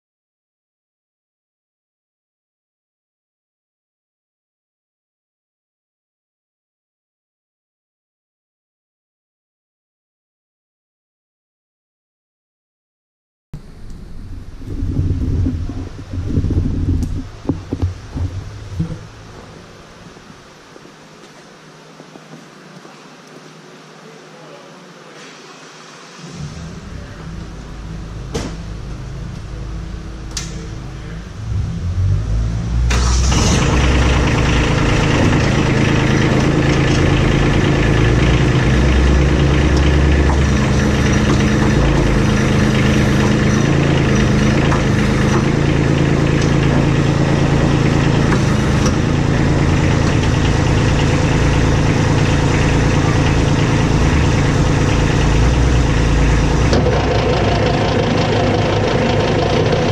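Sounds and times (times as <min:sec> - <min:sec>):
tractor engine starting and running: 0:13.6 - 0:20.5, 0:26.0 - 0:59.9.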